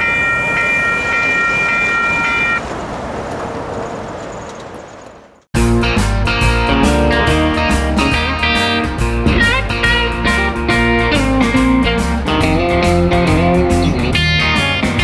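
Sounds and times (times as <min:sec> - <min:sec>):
electric guitar music over beat: 0:05.6 - 0:15.0.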